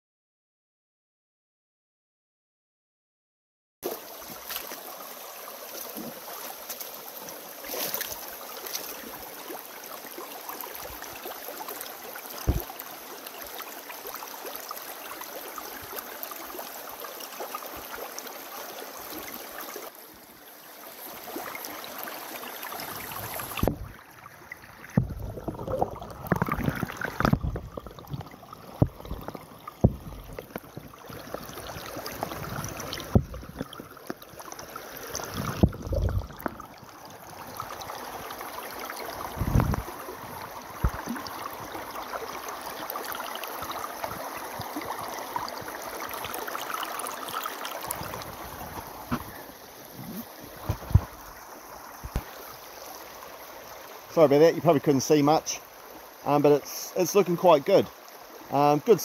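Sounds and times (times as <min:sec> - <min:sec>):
water rushing over gravel: 0:03.8 - 0:20.0, 0:20.9 - 0:52.6, 0:56.2 - 0:59.0
low rumbling splashes: 0:39.2 - 0:41.3.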